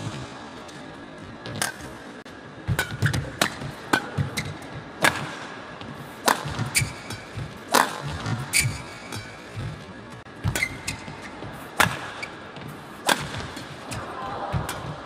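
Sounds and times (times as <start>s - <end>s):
racket striking shuttlecock: 1.5s - 1.9s, 2.6s - 5.6s, 6.2s - 9.8s, 10.4s - 12.4s, 13.0s - 15.0s
shoes squeaking on court: 4.2s - 4.8s, 5.8s - 13.0s.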